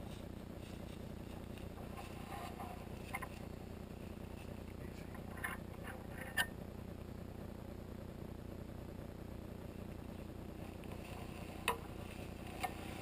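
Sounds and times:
soft rustles and clicks: 0.0s - 6.6s, 9.7s - 13.0s.

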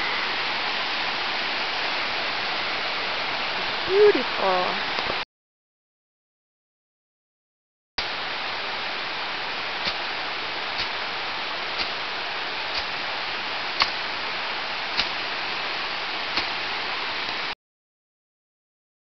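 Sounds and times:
creek water rushing over rapids: 0.0s - 5.2s, 8.0s - 17.5s.

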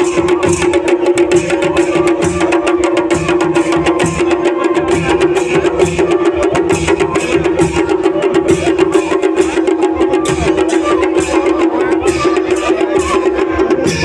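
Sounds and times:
drums in fast rhythm: 0.0s - 14.0s.

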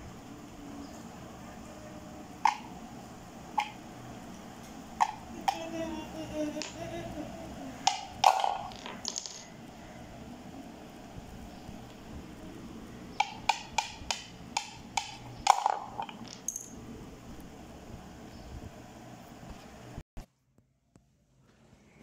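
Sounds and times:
wooden balls clicking into holes: 2.4s - 2.7s, 3.6s - 3.8s, 5.0s - 5.8s, 6.5s - 6.9s, 7.8s - 9.6s, 13.2s - 16.8s
wooden mallet knocking: 13.2s - 16.4s.

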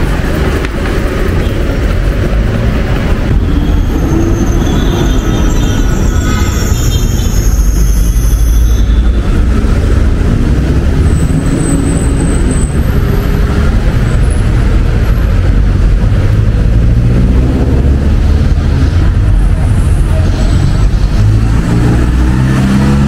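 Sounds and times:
rumble of passing traffic: 0.0s - 23.0s
high squeal: 3.3s - 9.5s.

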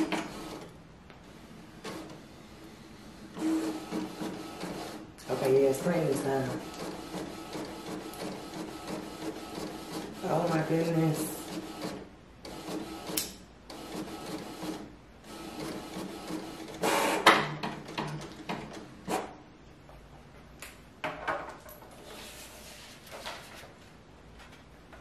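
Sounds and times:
printer head whirring: 0.0s - 0.7s, 1.3s - 19.3s.

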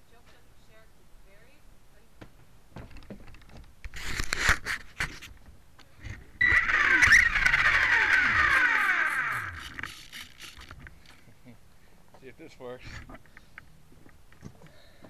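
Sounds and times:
mount rattling: 6.0s - 11.2s
helicopter motor whine: 6.4s - 10.7s.

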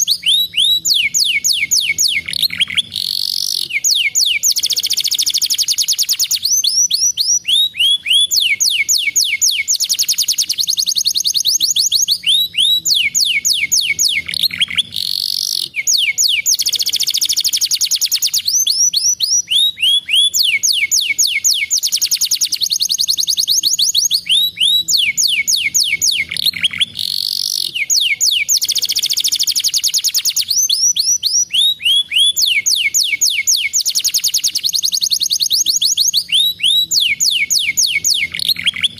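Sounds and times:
canary singing trills: 0.0s - 38.9s.

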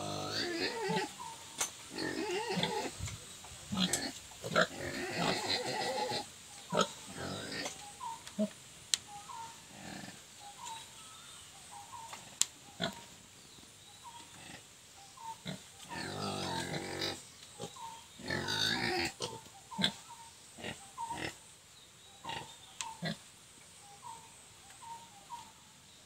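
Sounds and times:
piglets grunting: 0.0s - 3.0s, 3.7s - 7.8s, 9.6s - 10.3s, 14.4s - 21.4s.

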